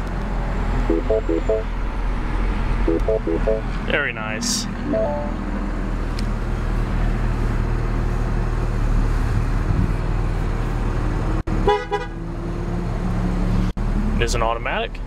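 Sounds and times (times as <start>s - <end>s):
car engine idling: 0.0s - 3.7s
car horn beep: 0.8s - 1.7s, 2.9s - 3.6s, 11.7s - 12.1s.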